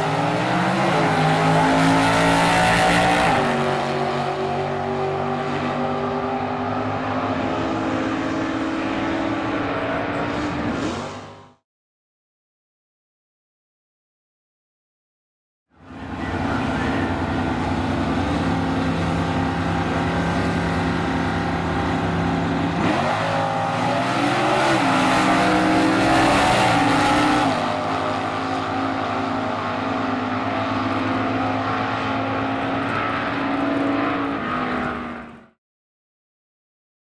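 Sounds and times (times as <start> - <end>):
drag race cars engines revving: 0.0 - 11.6, 15.8 - 35.6.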